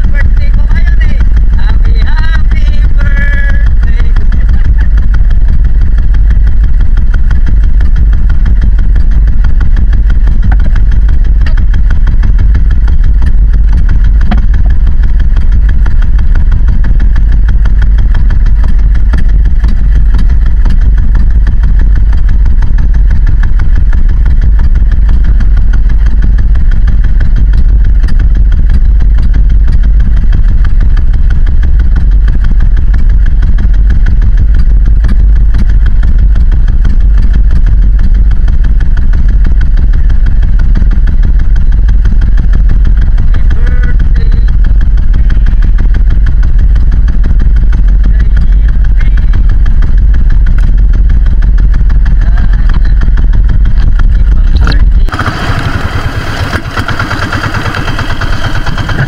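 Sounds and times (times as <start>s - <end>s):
boat engine running: 0.0s - 59.0s.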